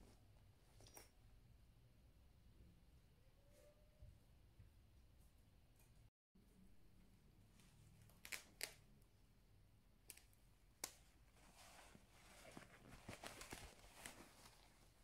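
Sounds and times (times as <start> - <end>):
fabric rustling: 11.2 - 15.0.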